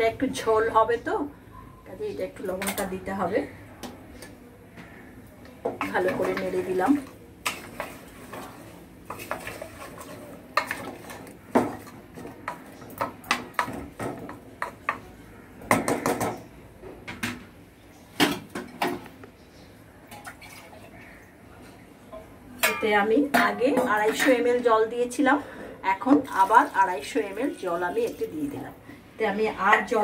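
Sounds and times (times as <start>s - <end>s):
spatula scraping metal pot: 5.8s - 12.6s.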